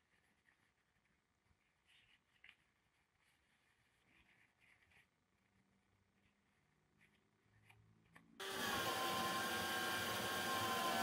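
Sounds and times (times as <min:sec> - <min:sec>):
paper towel rustling on metal: 0:00.0 - 0:07.2.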